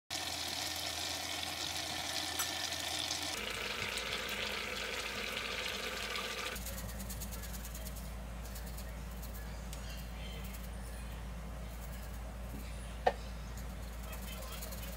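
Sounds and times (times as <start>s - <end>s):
stew sizzling in a pan: 0.1s - 6.6s.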